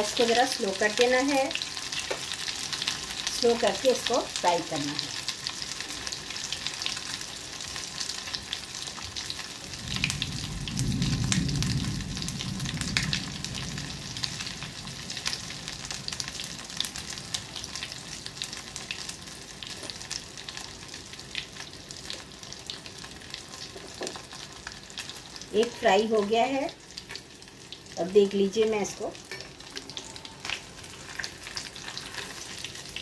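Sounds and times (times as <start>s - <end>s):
fish sizzling in hot oil: 0.0s - 33.0s
low rumble: 9.7s - 16.7s.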